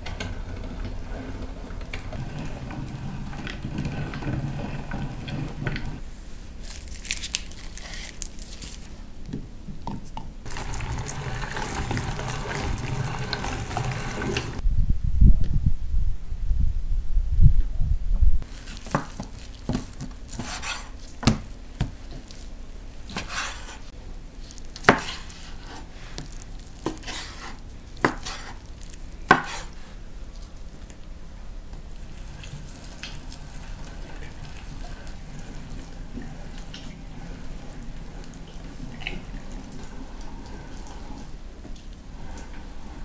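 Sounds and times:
hand-cranked meat grinder turning: 0.0 - 6.0, 10.5 - 14.6.

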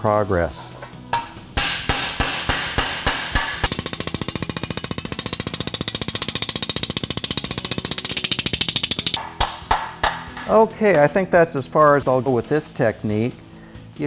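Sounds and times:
hammer striking sheet metal: 1.2 - 11.0.

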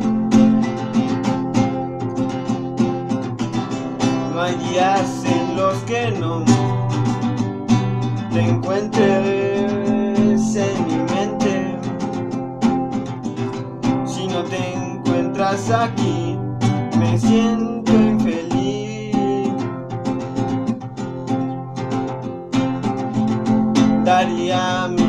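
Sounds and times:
acoustic guitar strumming: 0.0 - 25.0
man singing: 4.0 - 7.2, 8.3 - 12.4, 14.0 - 20.2, 23.9 - 25.0.

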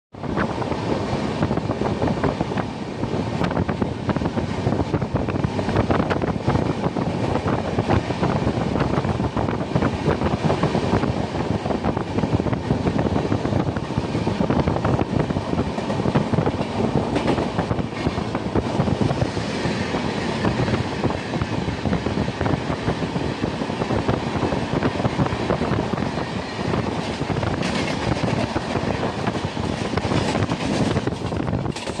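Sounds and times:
passing train clatter: 0.1 - 32.0
train wheels rumbling on rail: 0.1 - 32.0
wheels clickety-clack over joints: 11.9 - 19.3, 24.8 - 32.0.

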